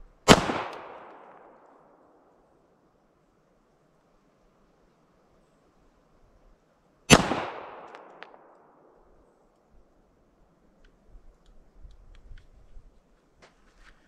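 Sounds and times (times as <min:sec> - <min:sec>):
pistol shot: 0:00.2 - 0:01.9, 0:07.1 - 0:08.7
faint ticks: 0:10.8 - 0:14.0.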